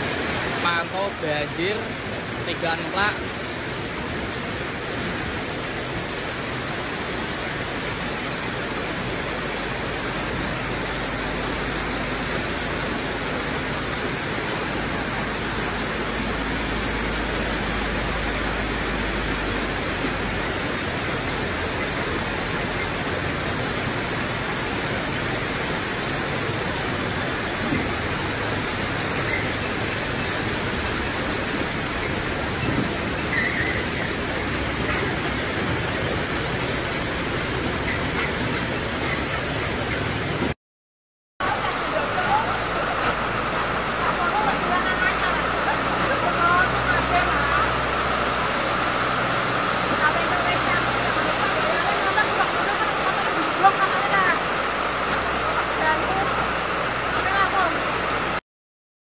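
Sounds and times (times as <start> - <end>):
floodwater rushing: 0.0 - 40.6, 41.4 - 58.4
heavy rain hiss: 0.0 - 40.6, 41.4 - 58.4
vehicle driving through water: 0.0 - 40.6, 41.4 - 58.4.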